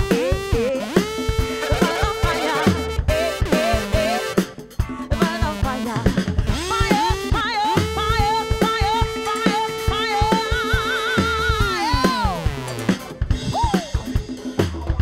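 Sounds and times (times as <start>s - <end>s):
woman singing with vibrato: 0.0s - 4.4s, 5.1s - 12.4s
live funk band playing: 0.0s - 15.0s.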